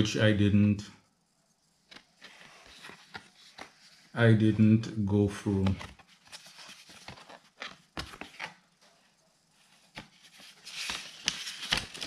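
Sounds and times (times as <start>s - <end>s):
paper rustling and crinkling: 1.9s - 4.2s, 5.6s - 9.0s, 9.6s - 12.0s.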